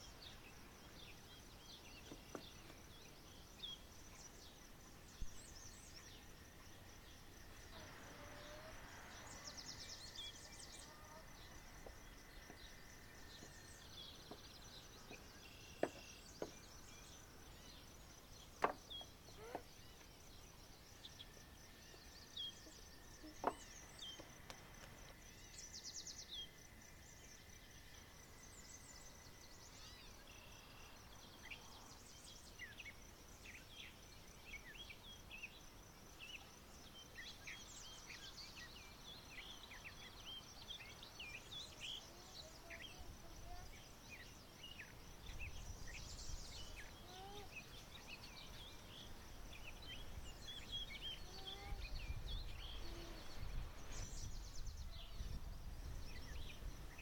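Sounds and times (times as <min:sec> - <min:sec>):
high insect drone: 0:00.0 - 0:57.0.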